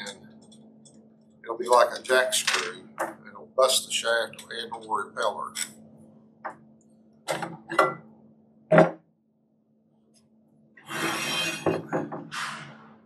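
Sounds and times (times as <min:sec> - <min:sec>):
grating metal scrape: 0:10.9 - 0:11.7.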